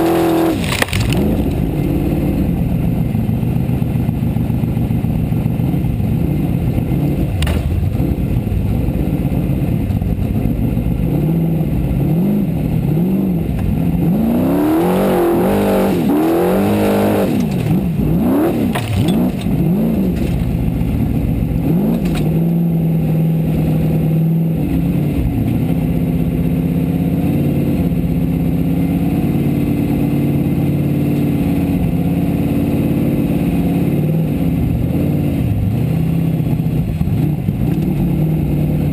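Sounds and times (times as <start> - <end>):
race car engine revving: 0.0 - 4.0, 5.6 - 38.9.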